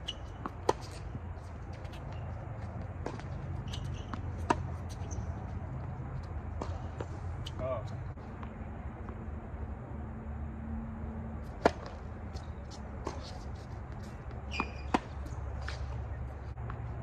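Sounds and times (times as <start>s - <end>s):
tennis ball hit by racket: 2.9s - 5.1s, 6.4s - 7.7s, 11.4s - 12.1s, 13.0s - 16.8s.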